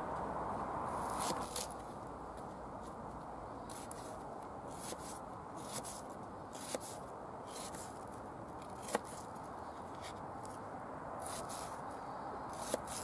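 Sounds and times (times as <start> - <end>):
steady background hiss: 0.0 - 13.0
knife slicing onion: 1.0 - 1.8, 3.7 - 8.0, 8.6 - 9.3, 11.2 - 11.8, 12.5 - 13.0.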